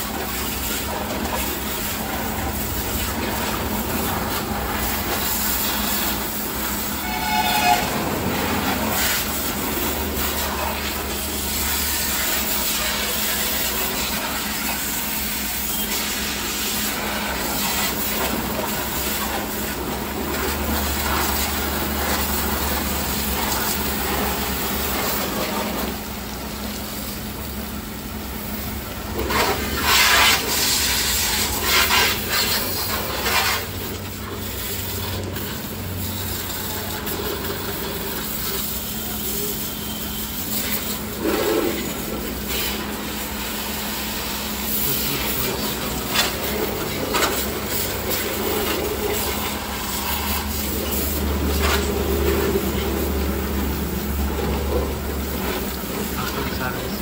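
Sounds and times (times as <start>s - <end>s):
pressure washer spraying: 0.0s - 57.0s.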